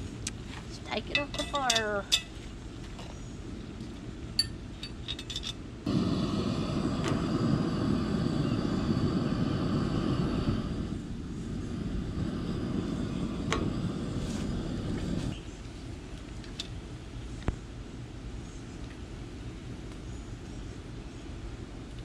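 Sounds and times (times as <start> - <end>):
light metal clinks: 1.1 - 2.4
gas burner rushing: 5.8 - 15.4.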